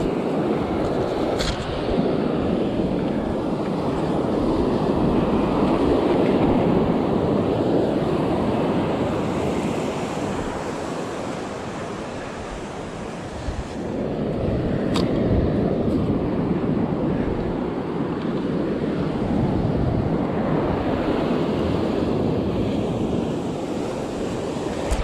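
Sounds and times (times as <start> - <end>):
ocean surf washing: 0.0 - 25.0
wind buffeting microphone: 0.0 - 25.0.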